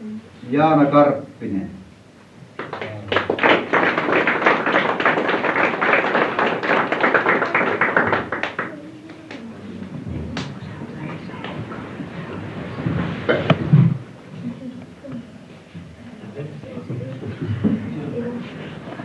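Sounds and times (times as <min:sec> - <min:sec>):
audience applauding: 0:02.6 - 0:09.4.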